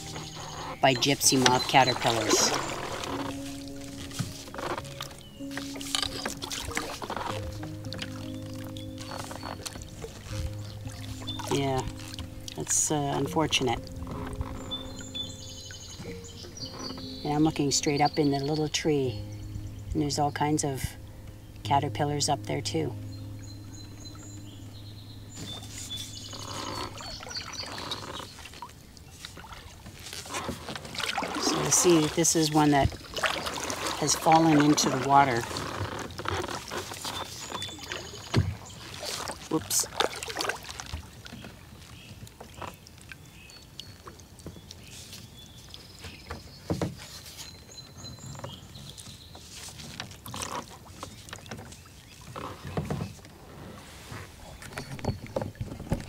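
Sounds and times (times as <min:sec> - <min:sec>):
birds chirping: 0:00.0 - 0:53.3, 0:54.1 - 0:56.0
water trickling off paddle: 0:00.0 - 0:56.0.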